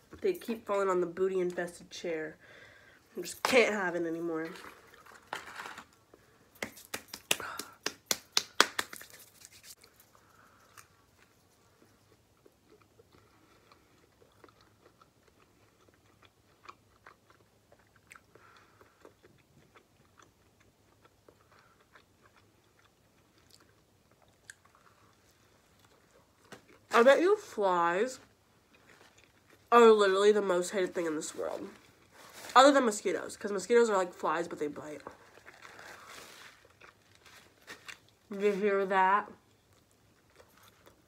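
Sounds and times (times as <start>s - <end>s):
food crackling: 3.2s - 41.0s
person chewing: 9.0s - 26.9s, 35.1s - 38.2s.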